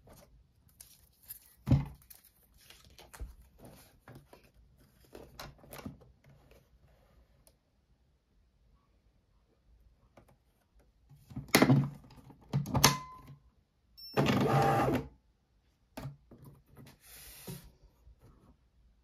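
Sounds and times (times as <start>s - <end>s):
faint handling sounds: 0.0s - 7.8s
printer feed motor whirring: 14.2s - 15.0s.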